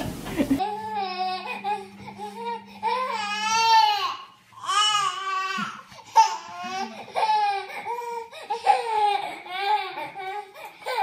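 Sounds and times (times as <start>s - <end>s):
baby crying: 0.6s - 11.0s.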